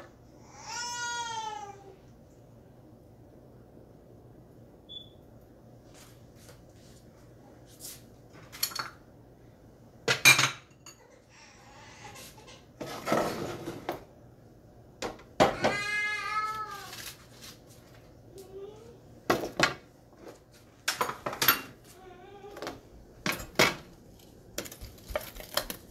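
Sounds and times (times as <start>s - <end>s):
kitchenware clattering: 8.4s - 9.0s, 10.1s - 11.2s, 12.5s - 14.0s, 20.8s - 21.8s, 22.6s - 23.9s.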